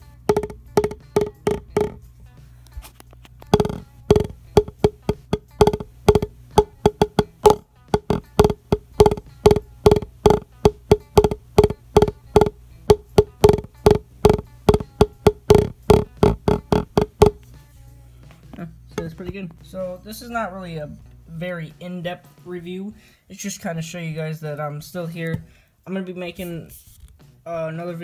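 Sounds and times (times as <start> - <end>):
drumsticks tapping practice pad: 0.0 - 2.0, 3.4 - 17.4.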